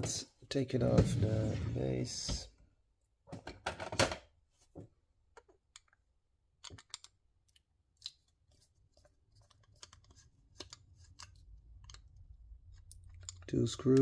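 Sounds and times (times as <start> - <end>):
screwdriver clicking and scraping: 8.0 - 14.0.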